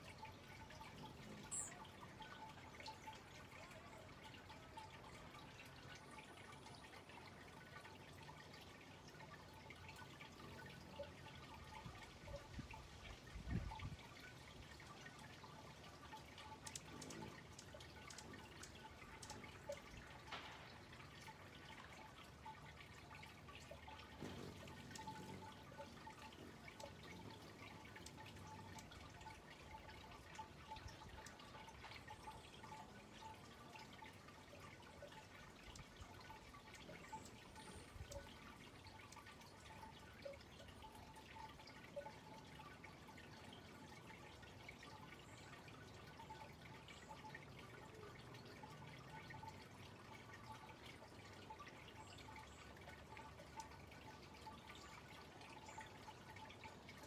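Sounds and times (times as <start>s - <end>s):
soft ticks: 16.4s - 20.6s.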